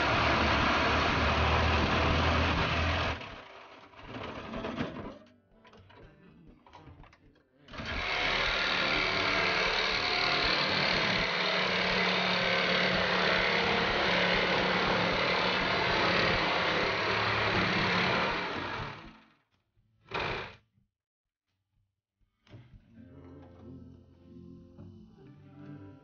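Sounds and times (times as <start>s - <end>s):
power tool cutting sheet metal: 0.0s - 5.2s, 7.7s - 19.3s, 20.1s - 20.6s.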